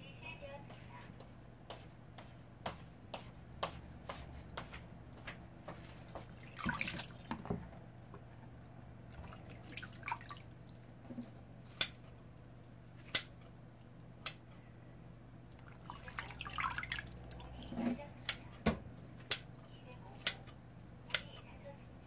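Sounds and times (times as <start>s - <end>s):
water dripping: 6.3s - 7.5s, 8.5s - 11.9s, 15.5s - 18.4s.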